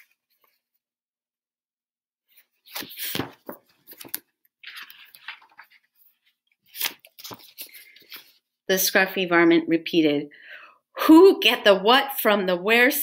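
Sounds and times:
paper sliding: 2.3 - 6.1
paper pages rustling: 2.3 - 8.5.

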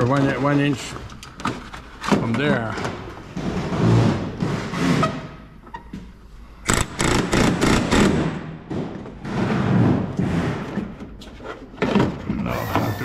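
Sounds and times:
pneumatic rivet gun hammering: 6.6 - 8.4.

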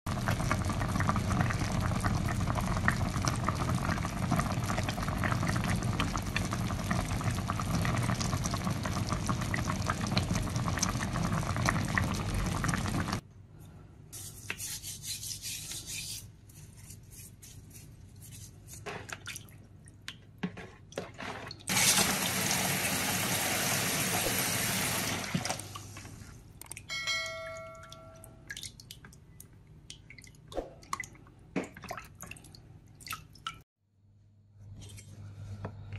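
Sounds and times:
hands rubbing salt into fish: 14.2 - 18.8.

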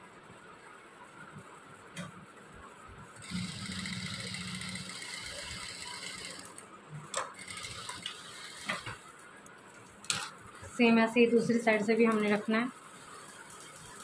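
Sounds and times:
sewing machine running: 3.2 - 6.6, 7.4 - 9.0.

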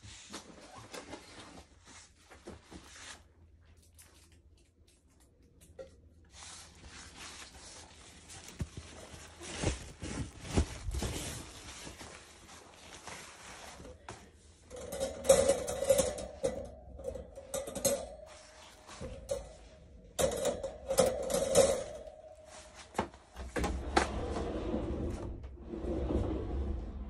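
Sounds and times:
pet pad rustling: 6.6 - 14.6
metal wire cage clattering: 14.7 - 23.0.

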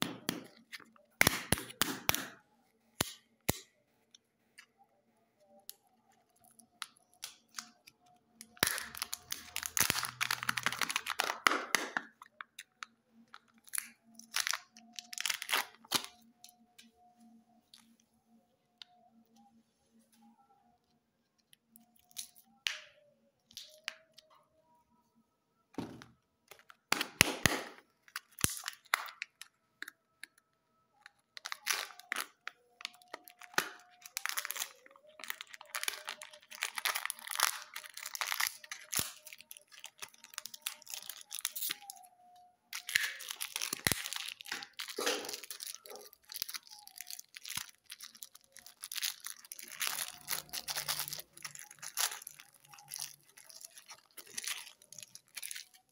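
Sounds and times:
plastic wrappers crinkling and tearing: 5.5 - 18.0, 26.5 - 55.9.

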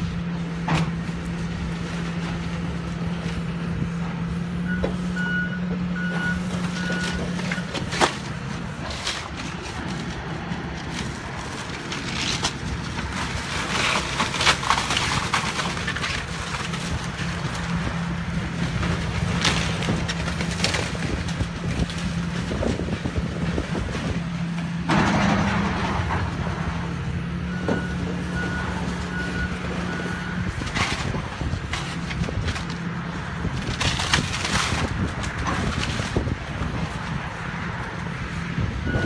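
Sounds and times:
excavator diesel engine running: 0.0 - 39.0
falling debris crashing: 6.4 - 37.0.

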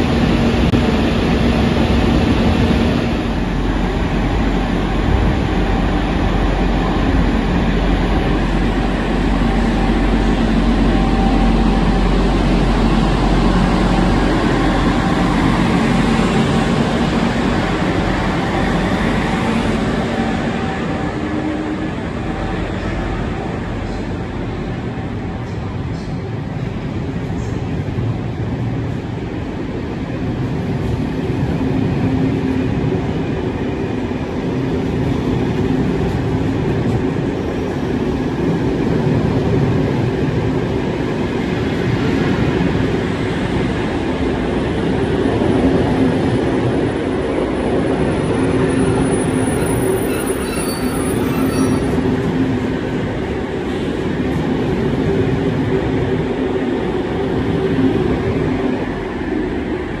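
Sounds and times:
train rumbling on track: 0.0 - 60.0
high wheel squeals: 48.8 - 52.0.

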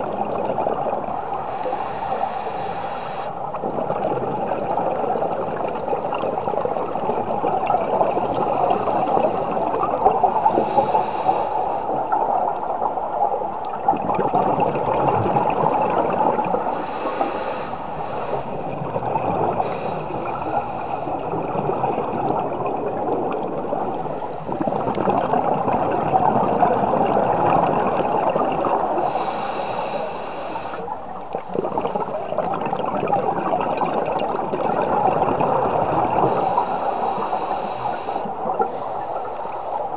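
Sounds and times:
underwater rush of bubbles: 0.0 - 39.9
bright bubbling: 13.6 - 39.2.

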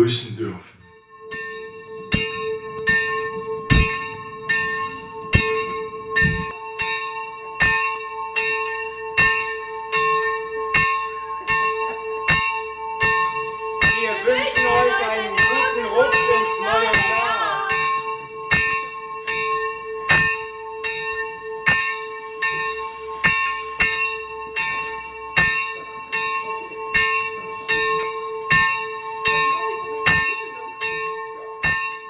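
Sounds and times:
church bell ringing: 0.8 - 32.0
person speaking: 14.0 - 17.8.

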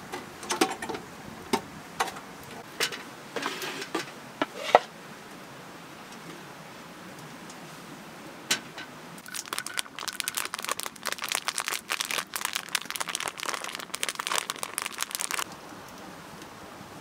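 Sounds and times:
crinkling crackles: 9.2 - 15.6.

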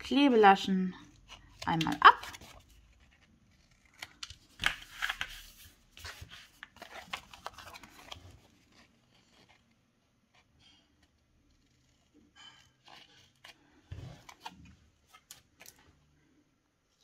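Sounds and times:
paper rustling: 1.1 - 9.8.

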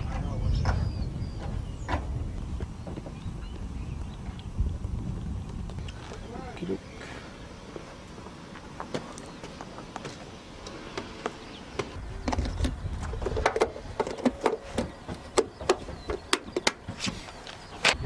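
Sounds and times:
low rumble: 0.0 - 6.6.

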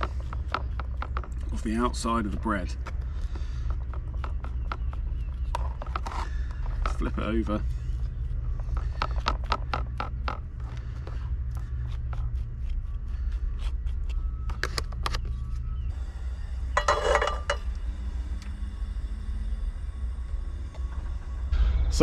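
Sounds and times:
low rumble: 0.0 - 22.0
gas stove igniting: 16.0 - 22.0.

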